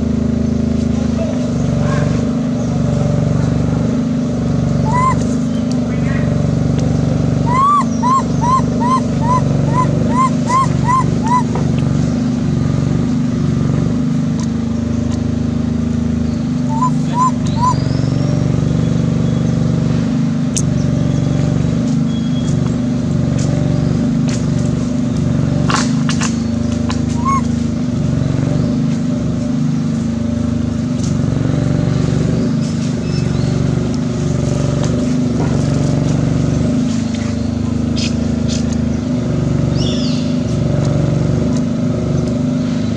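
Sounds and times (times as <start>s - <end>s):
low motor-like drone: 0.0s - 42.9s
short rising chirps: 7.5s - 11.5s.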